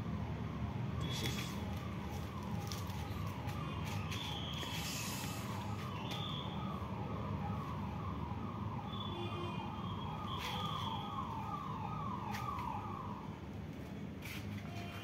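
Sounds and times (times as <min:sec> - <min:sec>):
electronic alarm falling tone: 0:03.1 - 0:13.2.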